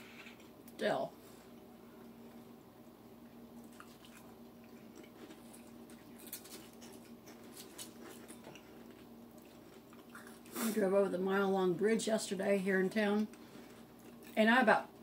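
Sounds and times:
steady low hum: 0.0 - 15.0
chewing potato chips: 3.6 - 10.6, 13.3 - 14.4.

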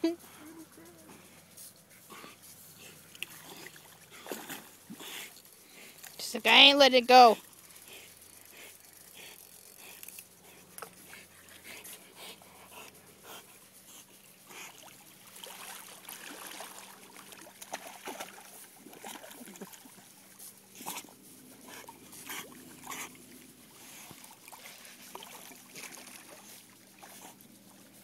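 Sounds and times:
dog splashing in water: 14.7 - 20.1, 24.1 - 27.3.

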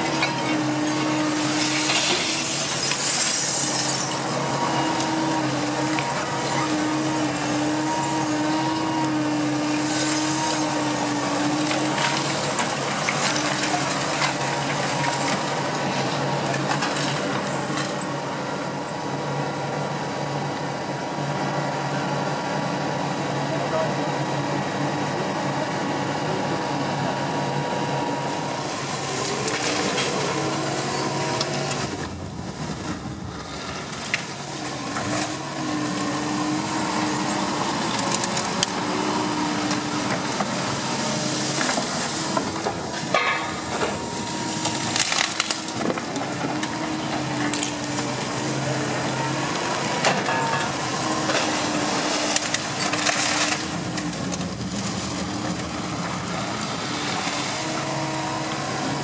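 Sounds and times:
material handler hydraulic hum: 0.0 - 59.0
scrap wood cracking and clattering: 44.6 - 48.1, 50.0 - 56.2.

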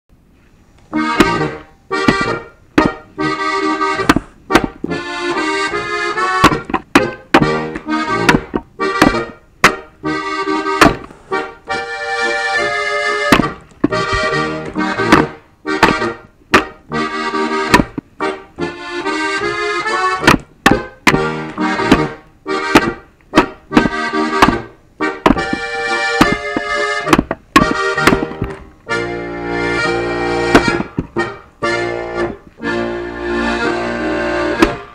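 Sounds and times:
accordion music: 0.7 - 34.9
axe splitting firewood logs: 0.9 - 11.4, 12.2 - 32.4, 33.7 - 34.9.

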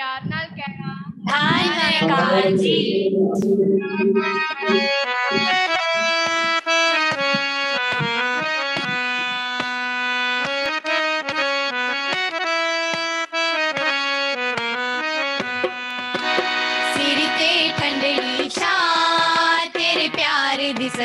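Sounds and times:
harmonium melody: 3.8 - 21.0
hand drum beating: 4.3 - 9.8.

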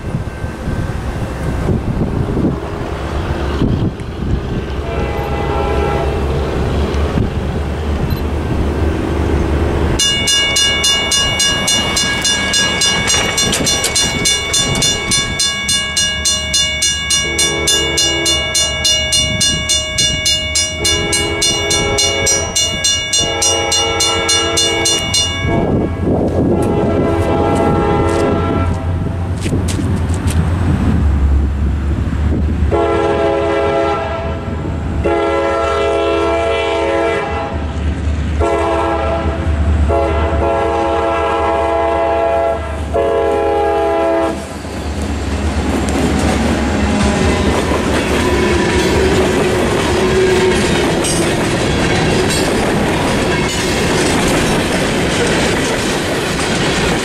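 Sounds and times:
low locomotive engine rumble: 0.0 - 57.0
train horn blasts: 4.8 - 6.5, 17.1 - 29.2, 32.7 - 37.7, 38.4 - 44.5, 46.7 - 51.0
crossing signal bell ringing: 10.0 - 26.4, 46.7 - 56.5.

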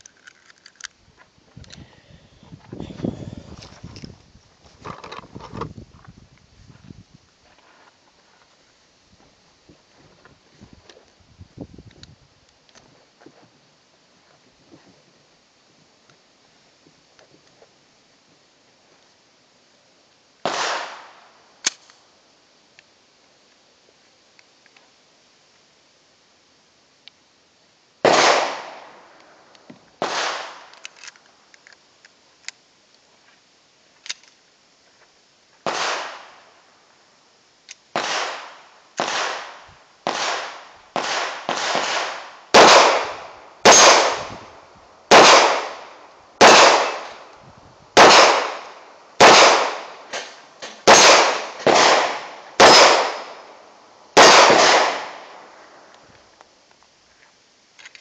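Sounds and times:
pistol shots with echo: 20.5 - 21.1, 28.0 - 28.9, 30.0 - 30.7, 35.7 - 36.2, 38.0 - 44.4, 45.1 - 47.2, 48.0 - 49.9, 50.8 - 53.5, 54.2 - 55.3.

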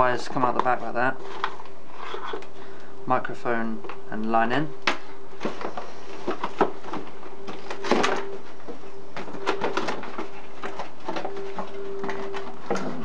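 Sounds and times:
boiler humming: 0.0 - 13.0.

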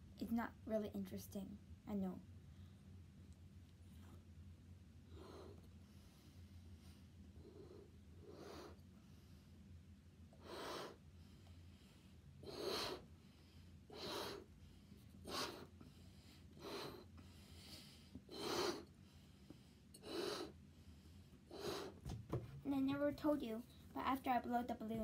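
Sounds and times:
boy blowing up a balloon: 12.4 - 13.1, 13.9 - 14.5, 15.2 - 15.8, 18.3 - 18.9, 20.0 - 20.6, 21.5 - 22.1.

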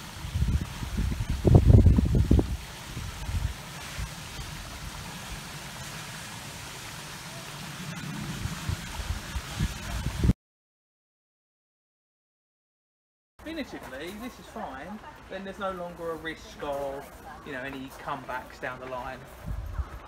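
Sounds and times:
wind gusts on microphone: 0.0 - 5.1, 7.9 - 10.4, 19.2 - 20.0
steady outdoor hiss: 0.0 - 10.3, 13.4 - 20.0.

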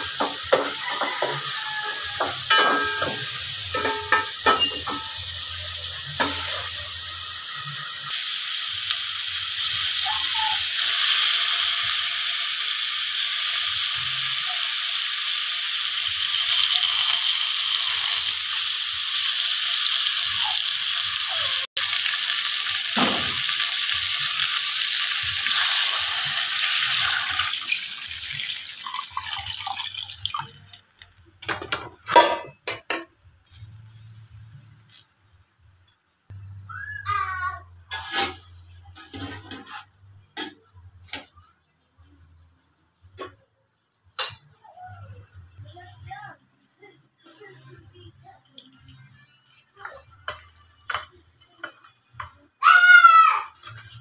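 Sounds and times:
fish sizzling in oil: 0.0 - 31.2, 52.6 - 54.0.

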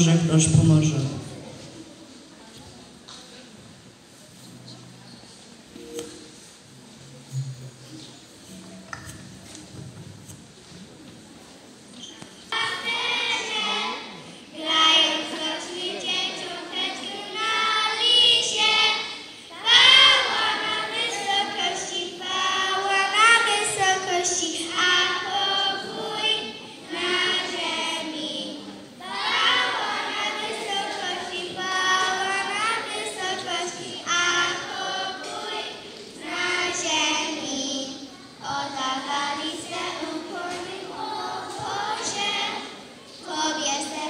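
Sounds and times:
children's choir singing: 12.5 - 44.0.

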